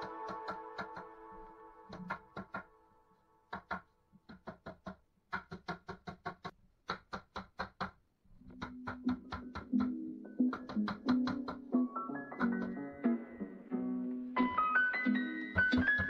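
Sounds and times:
music: 0.0 - 3.5, 8.8 - 16.0
mallet tapping wooden shelving: 1.9 - 2.7.

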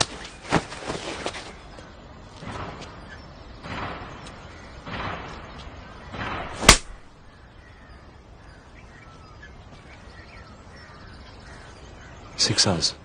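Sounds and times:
faint bird chirps: 0.1 - 13.0
slap across a face: 6.6 - 7.0.

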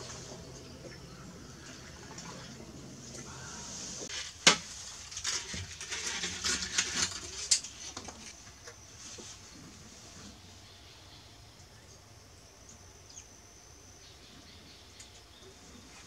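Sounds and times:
clattering knocks and scrapes: 4.0 - 10.4.

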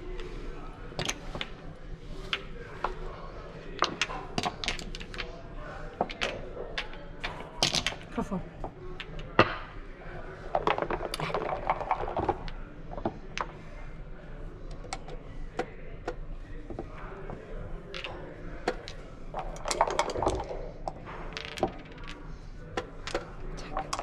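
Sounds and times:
dice thrown from a cup: 3.8 - 8.1, 10.5 - 12.6, 17.8 - 24.0
checkers clacking on board: 14.8 - 22.2.

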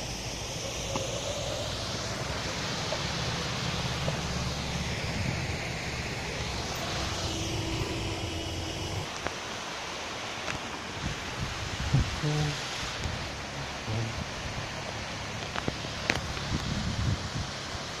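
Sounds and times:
low rumble: 0.0 - 9.1
small waterfall rushing: 0.0 - 18.0.

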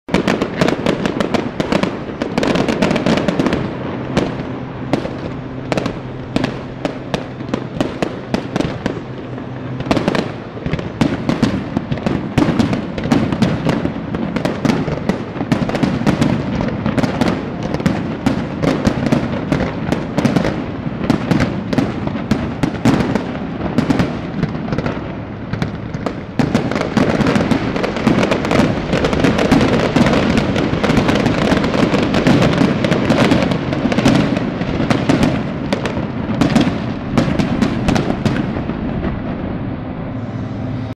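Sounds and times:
fireworks bangs and crackles: 0.1 - 40.9.

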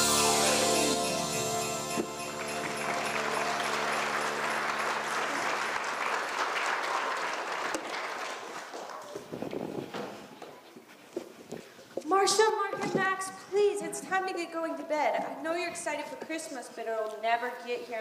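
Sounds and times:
music: 0.0 - 5.7
audience applause: 0.0 - 9.2.

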